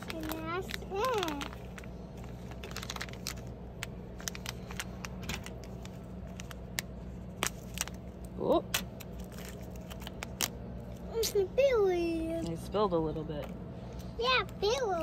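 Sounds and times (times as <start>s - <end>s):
plastic packet crinkling: 0.0s - 11.0s
steady low hum: 0.0s - 15.0s.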